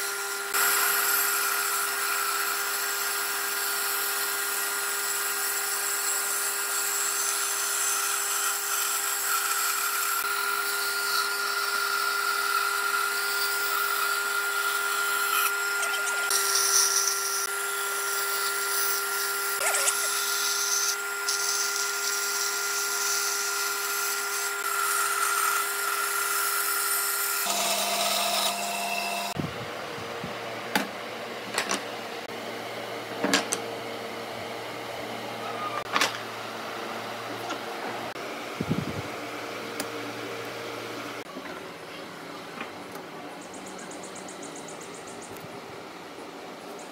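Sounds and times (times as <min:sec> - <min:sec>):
band saw cutting wood: 0:00.0 - 0:29.4.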